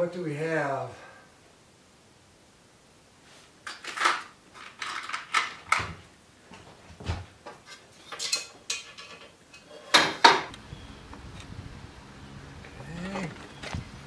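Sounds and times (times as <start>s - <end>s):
metal tools clinking and clattering: 7.6s - 10.1s.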